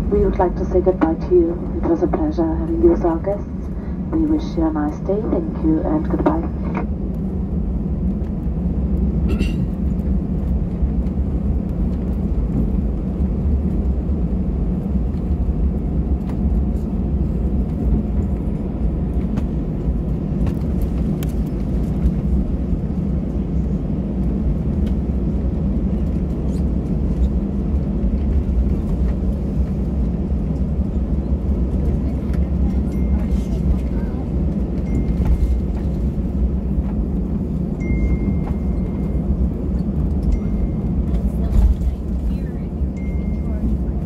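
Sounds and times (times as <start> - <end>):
airplane cabin rumble taxiing: 0.0 - 44.0.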